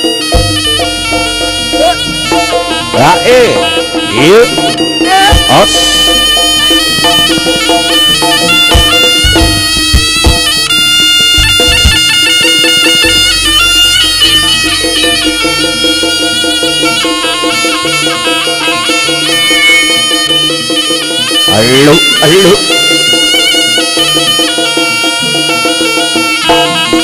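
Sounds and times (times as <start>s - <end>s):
drum strokes: 0.0s - 27.0s
shawm playing wavering melody: 0.0s - 27.0s
steady low beat: 3.6s - 10.7s.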